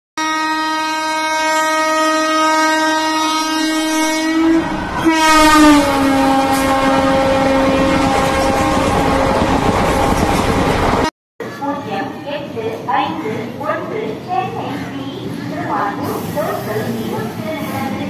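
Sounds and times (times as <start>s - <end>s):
train horn blast: 0.2s - 11.1s
train coaches rumbling past: 2.5s - 18.0s.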